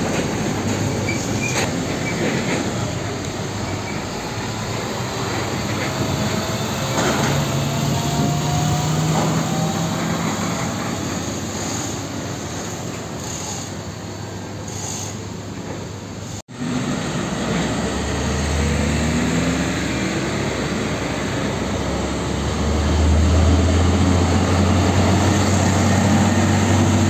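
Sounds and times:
trucks driving past: 0:00.0 - 0:13.1, 0:16.5 - 0:27.0
tyre and road noise: 0:00.0 - 0:13.8.

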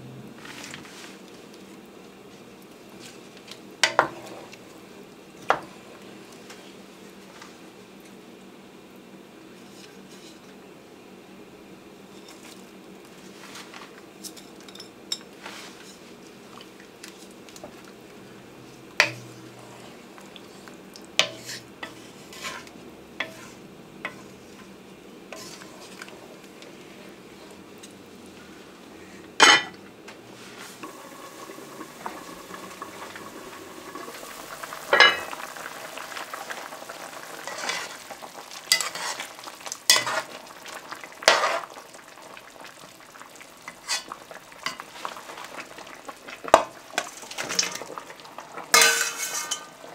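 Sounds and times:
spoon stirring soup in pot: 0:19.0 - 0:24.7, 0:25.4 - 0:26.5, 0:37.0 - 0:41.8.

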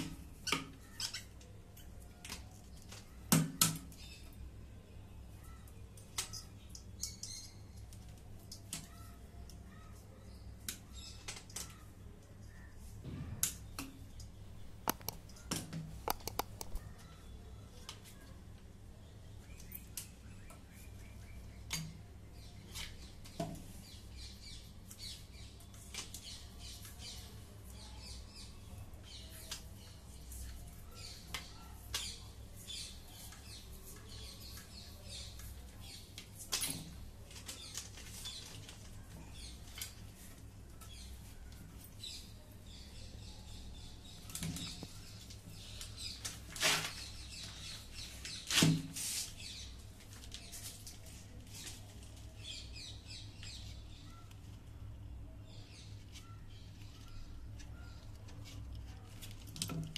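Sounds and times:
wire handled with pliers: 0:14.5 - 0:16.8
sharp snaps: 0:14.5 - 0:16.9.

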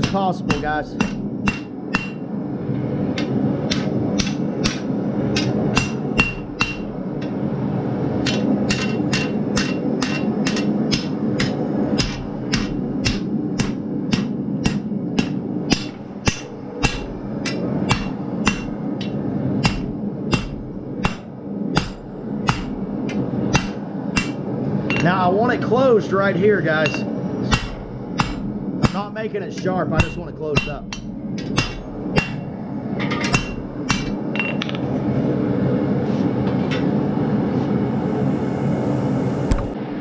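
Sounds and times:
hammer striking steel on anvil: 0:00.0 - 0:02.3, 0:03.2 - 0:07.4, 0:08.2 - 0:25.1, 0:26.8 - 0:34.8
low rumble: 0:00.0 - 0:40.0.

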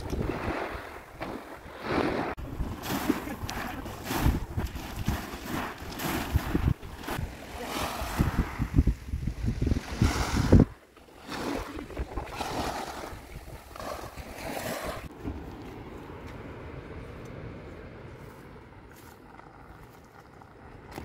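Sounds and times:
wind buffeting microphone: 0:00.0 - 0:10.8
waves washing up pebble beach: 0:00.0 - 0:15.1.

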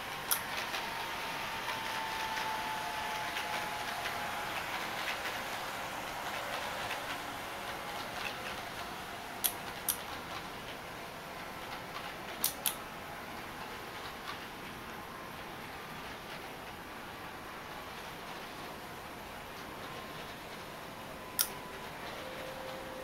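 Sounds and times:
model train motor whine: 0:00.0 - 0:10.6, 0:17.3 - 0:23.0
wheels ticking on rails: 0:00.0 - 0:23.0
sharp clicks: 0:12.4 - 0:12.8, 0:21.4 - 0:21.6.

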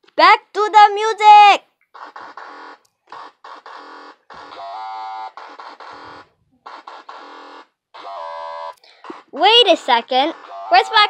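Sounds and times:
buzzy synthesizer electronic music: 0:08.0 - 0:11.0.

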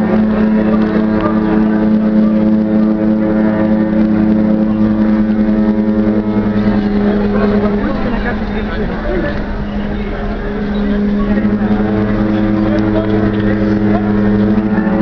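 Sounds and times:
ships' horns blasting: 0:00.0 - 0:15.0.

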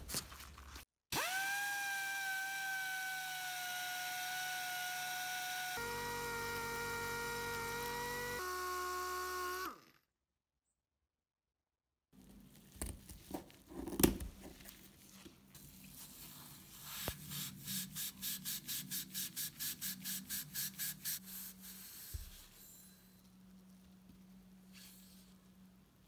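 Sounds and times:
blade cutting pad: 0:01.2 - 0:10.0.

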